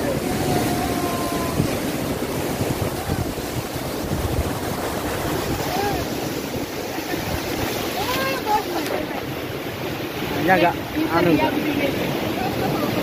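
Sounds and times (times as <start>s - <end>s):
rushing white water roar: 0.0s - 13.0s
wind buffeting microphone: 0.0s - 13.0s.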